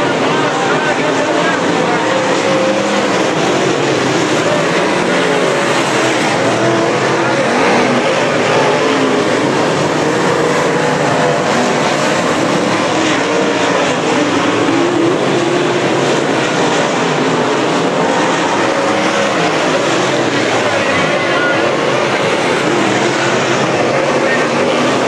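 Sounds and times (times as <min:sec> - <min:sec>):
race car engines at high revs: 0:00.0 - 0:25.0.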